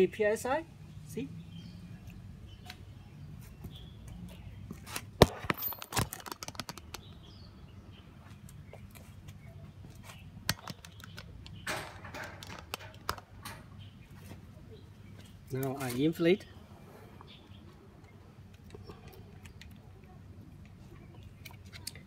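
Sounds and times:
sharp clicks and knocks: 5.2 - 7.2, 10.5 - 13.7.

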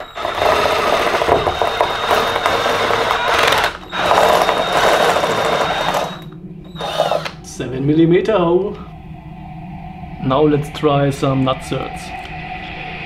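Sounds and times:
drill cutting through metal sheet: 0.0 - 7.4.

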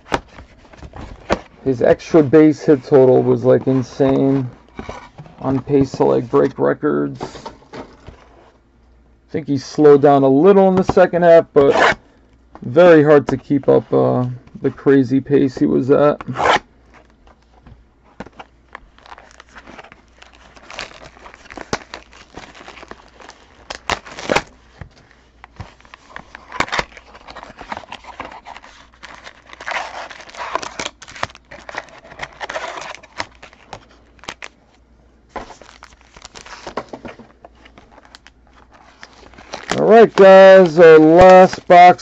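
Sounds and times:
packaging crinkling: 18.4 - 34.6, 35.3 - 42.0.

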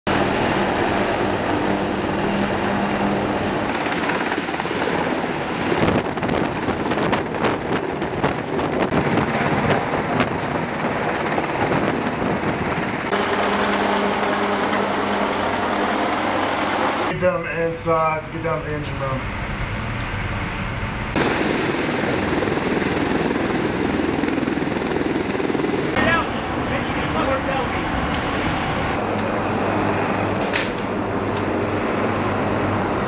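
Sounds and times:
helicopter rotor and turbine drone: 0.1 - 17.1, 18.9 - 33.0
gusty noise: 4.5 - 13.2.

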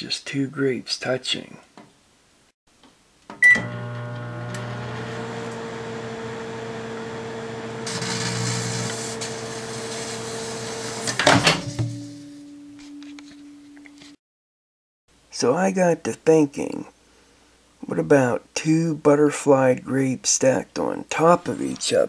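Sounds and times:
microwave beep: 3.4 - 4.8
microwave oven humming: 3.4 - 11.1.

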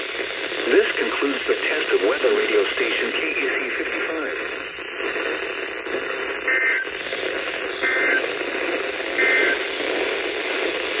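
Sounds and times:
radio hiss: 0.0 - 11.0
two-tone digital data bursts: 6.3 - 9.7.

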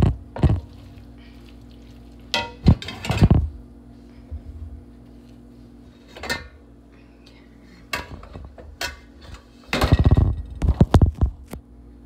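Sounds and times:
steady low hum: 0.0 - 12.0
pots and pans clattering: 2.3 - 3.4, 7.9 - 10.6.

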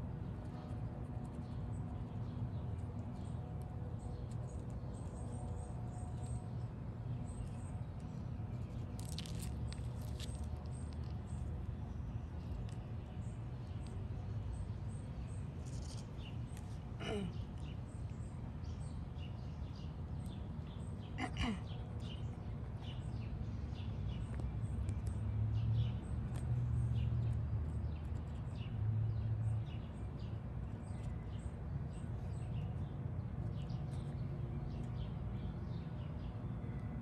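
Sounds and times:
small birds chirping: 0.0 - 37.0.

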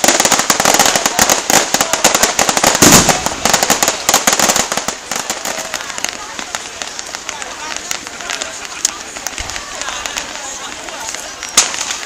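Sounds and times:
fireworks crackling bangs: 0.0 - 12.0
deep firework bang: 2.8 - 4.7.

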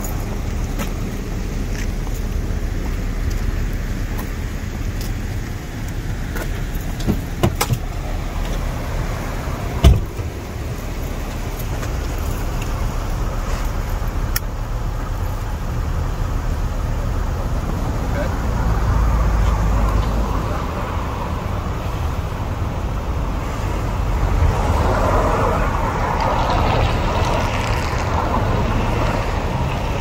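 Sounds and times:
cars passing: 0.0 - 30.0
loud thump: 9.8 - 10.3.

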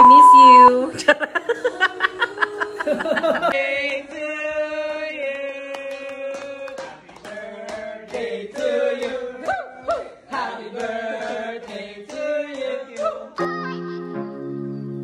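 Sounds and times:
sharp claps: 5.2 - 13.2.

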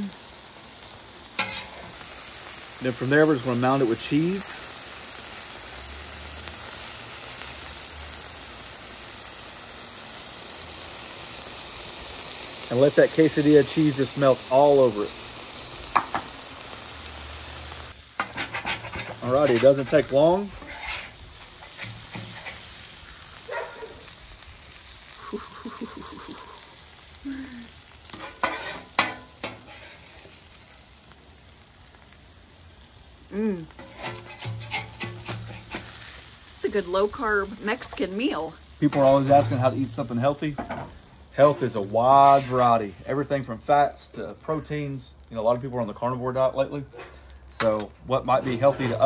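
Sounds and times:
meat and vegetables sizzling on griddle: 0.0 - 49.0
metal spatula scraping griddle: 1.4 - 2.0, 18.1 - 23.6, 28.1 - 30.8, 33.7 - 36.4, 38.8 - 43.2, 48.3 - 49.0.

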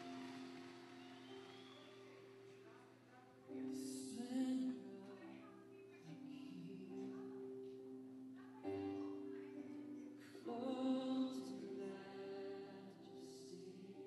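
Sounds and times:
sustained accompaniment: 0.0 - 3.3
soft singing on held notes: 0.0 - 14.0.

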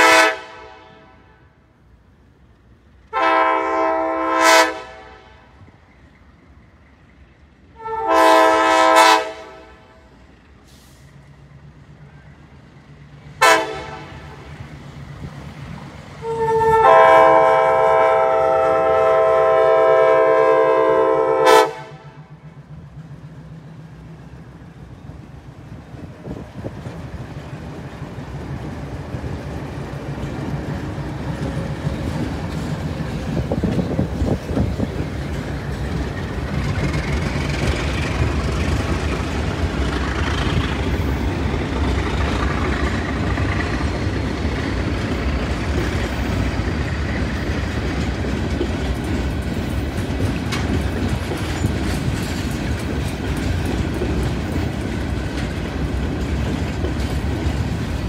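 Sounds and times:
locomotive air horn: 0.0 - 1.5, 3.1 - 5.6, 7.8 - 10.0, 13.4 - 14.5, 16.2 - 22.3
locomotive engine rumble: 0.0 - 58.0
train wheels clattering on rails: 20.9 - 58.0.

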